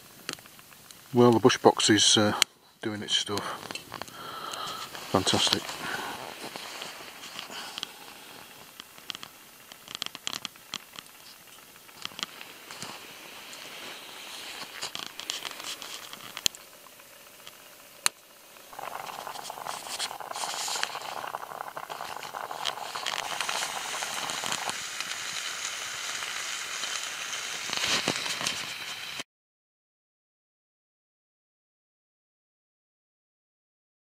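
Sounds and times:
fire pops: 0:00.0 - 0:29.2
steady hiss: 0:00.0 - 0:29.2
wood fire crackling: 0:00.0 - 0:29.2.

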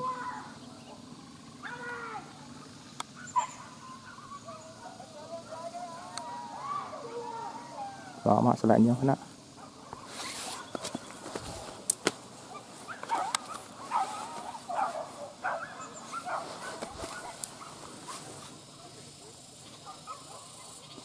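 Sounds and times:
dogs barking and yelping: 0:00.0 - 0:05.1, 0:09.5 - 0:21.0.

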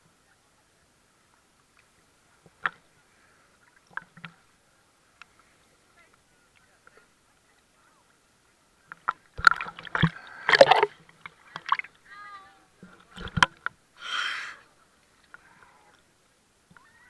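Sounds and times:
seawater sloshing and splashing: 0:09.4 - 0:12.0.

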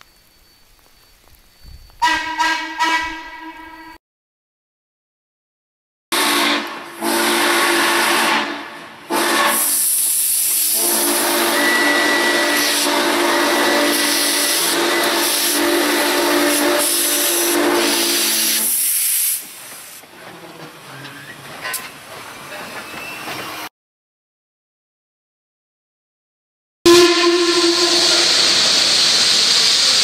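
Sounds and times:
steam locomotive chime whistle: 0:01.9 - 0:04.0, 0:06.2 - 0:10.0, 0:10.6 - 0:18.9, 0:26.9 - 0:29.4
loud steam hiss: 0:09.1 - 0:20.0, 0:27.3 - 0:30.0.

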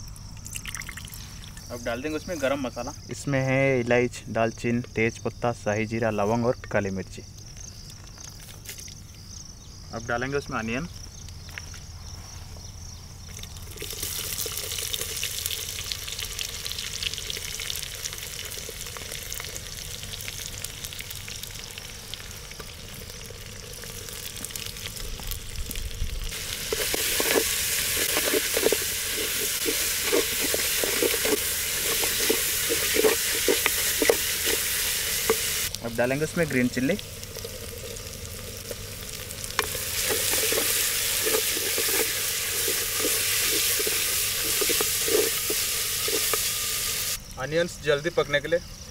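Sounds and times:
onions sizzling in oil: 0:13.3 - 0:47.2
wooden spatula scraping clay pot: 0:26.3 - 0:35.7, 0:39.6 - 0:46.6.

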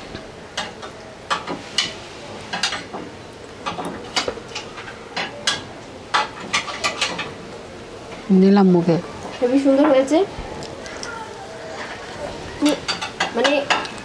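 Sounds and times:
chewing: 0:10.4 - 0:12.9.

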